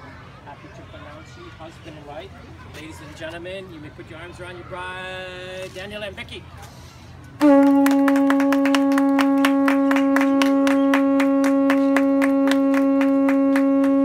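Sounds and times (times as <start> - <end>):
conch shell trumpet note: 7.4 - 14.0
people clapping: 7.4 - 14.0.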